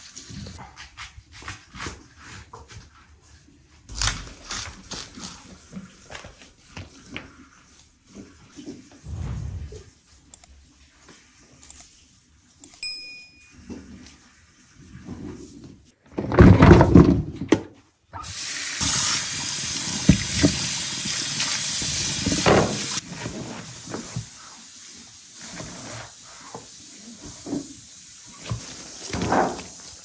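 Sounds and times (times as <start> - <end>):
water running: 18.2 - 23.0.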